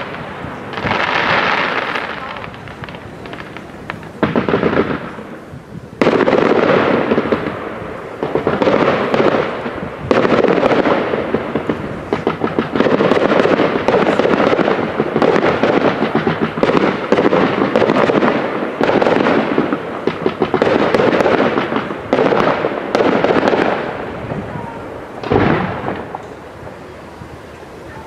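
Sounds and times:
fireworks bangs and crackles: 0.0s - 28.0s.

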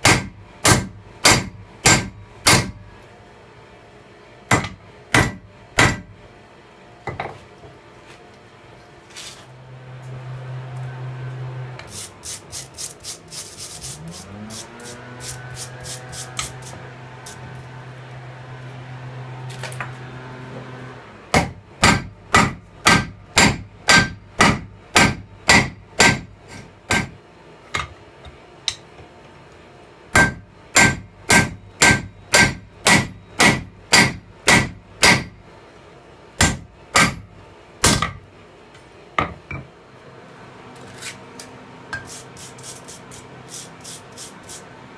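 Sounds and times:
hammer striking hot steel: 0.0s - 2.8s, 4.5s - 6.1s, 21.3s - 27.2s, 30.1s - 35.4s, 36.4s - 37.2s, 37.8s - 38.2s.

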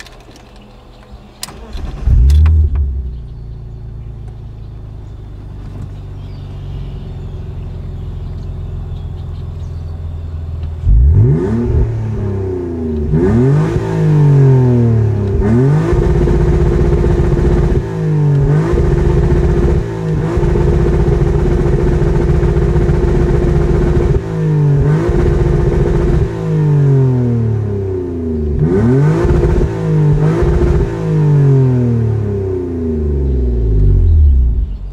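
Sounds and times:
car engine bouncing off rev limiter: 10.9s - 27.8s, 28.4s - 34.8s.

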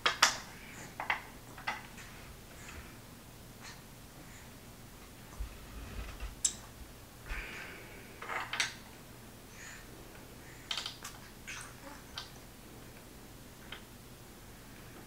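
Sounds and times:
wooden pieces clicking and tapping: 10.7s - 11.2s.

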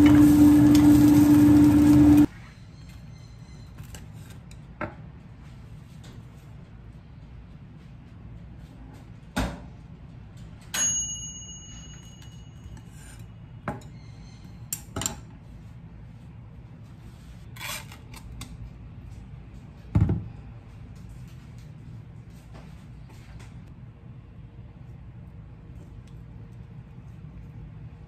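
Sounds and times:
low steady hum: 18.2s - 28.0s.

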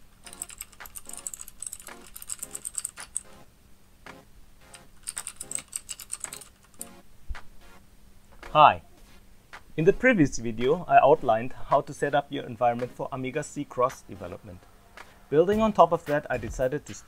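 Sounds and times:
computer keyboard typing: 0.0s - 3.4s, 4.6s - 7.0s.

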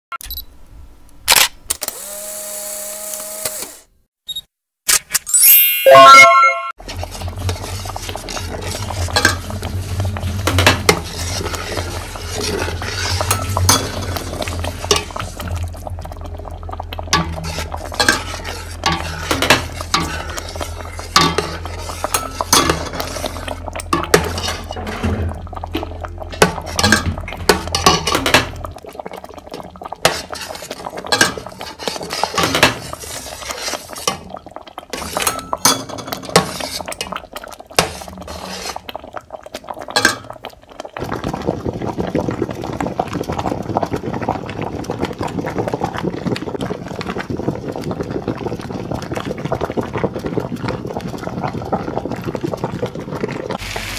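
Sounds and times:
metal utensil scraping cookware: 6.8s - 15.3s, 17.2s - 25.5s, 26.4s - 28.6s.

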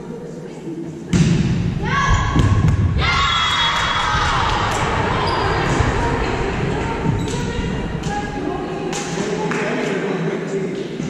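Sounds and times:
volleyball hitting wooden floor: 1.1s - 3.0s
crowd shouting and cheering: 1.7s - 8.9s.

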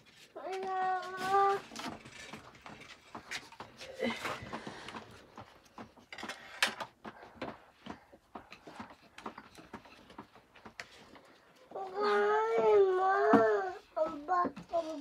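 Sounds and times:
child singing: 11.8s - 15.0s.

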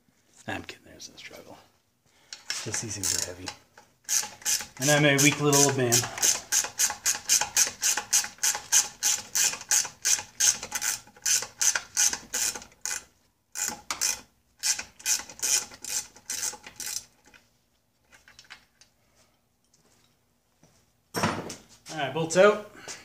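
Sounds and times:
ratcheting wrench clicking: 2.4s - 17.1s.

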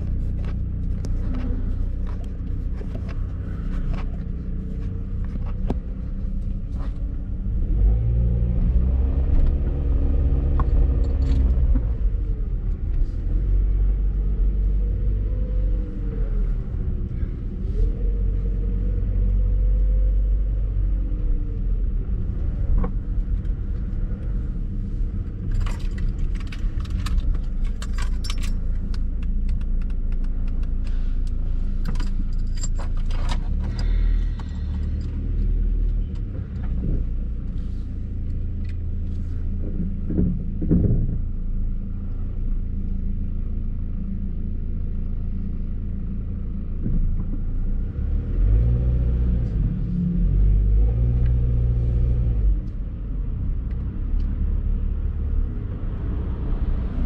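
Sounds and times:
car engine rumble from cabin: 0.0s - 57.0s
light jangling clicks: 25.5s - 30.8s, 31.8s - 33.8s.

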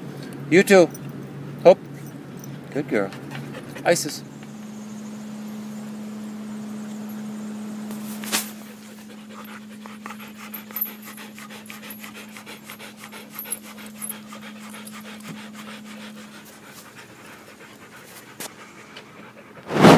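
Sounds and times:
steady low hum: 0.0s - 19.6s
dog panting rapidly: 3.0s - 4.3s, 8.6s - 19.7s
sharp thump: 19.7s - 19.9s.

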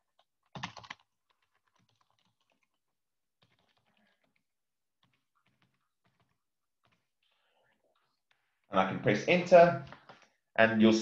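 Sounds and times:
faint keyboard typing: 0.0s - 8.8s.

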